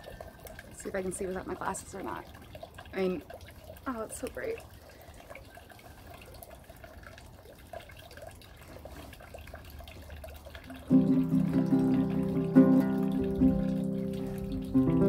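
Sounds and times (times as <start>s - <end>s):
strummed string chord ringing: 10.9s - 15.0s.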